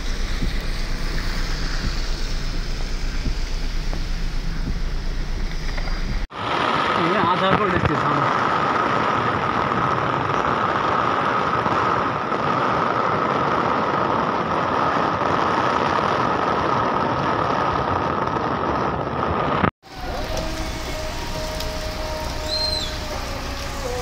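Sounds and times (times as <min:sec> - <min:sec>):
steady hum: 0:00.0 - 0:06.2
lighter rain: 0:00.0 - 0:14.4, 0:19.3 - 0:24.0
heavy rain pouring: 0:00.0 - 0:18.3, 0:19.6 - 0:24.0.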